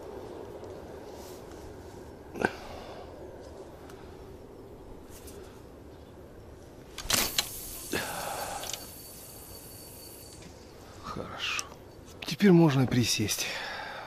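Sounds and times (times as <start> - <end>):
line hissing off reel: 7.0 - 10.7
thin high whistle: 7.7 - 10.7.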